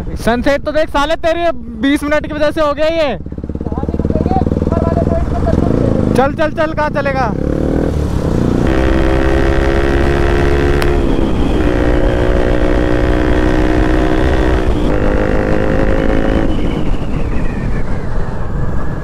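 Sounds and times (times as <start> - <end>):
motorcycle engine accelerating: 2.1 - 18.9
wind noise: 7.6 - 19.0.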